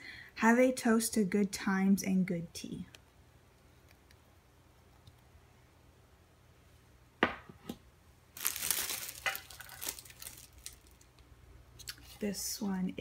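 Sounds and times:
object knocking when set down: 0:07.2 - 0:07.7
packaging crinkling: 0:08.3 - 0:11.2.

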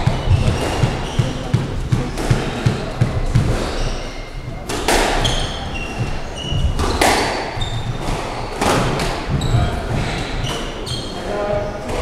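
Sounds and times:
squash ball struck hard: 0:00.0 - 0:03.8, 0:04.7 - 0:10.1
shoes squeaking on wooden floor: 0:00.0 - 0:12.0.

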